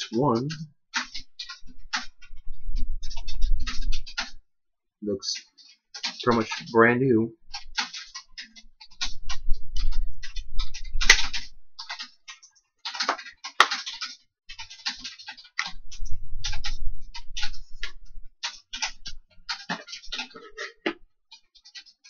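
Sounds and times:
plastic disc cases clicking: 12.9s - 15.8s.

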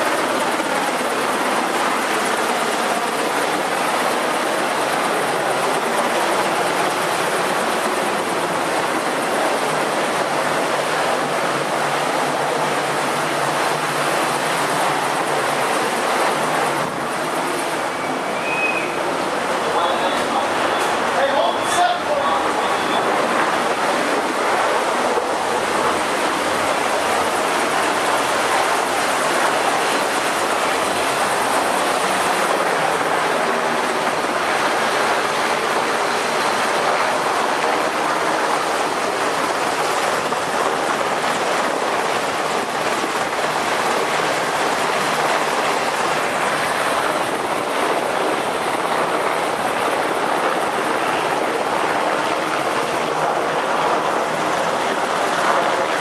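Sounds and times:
ship machinery: 0.0s - 56.0s.

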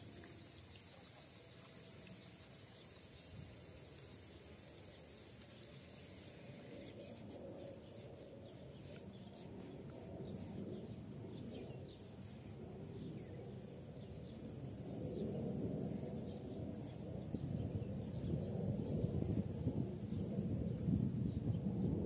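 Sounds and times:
wind noise on microphone: 14.0s - 22.0s.

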